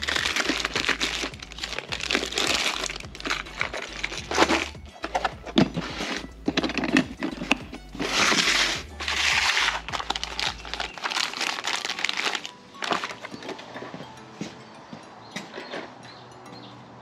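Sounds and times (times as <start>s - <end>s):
plastic bags crinkling: 0.0s - 14.0s
plastic latches and lids clicking: 0.3s - 10.9s.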